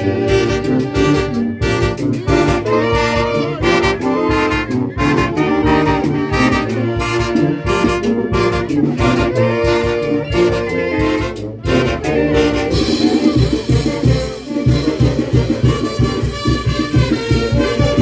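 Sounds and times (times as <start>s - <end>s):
saxophones and brass playing: 0.0s - 18.0s
steady drum beat: 0.0s - 18.0s.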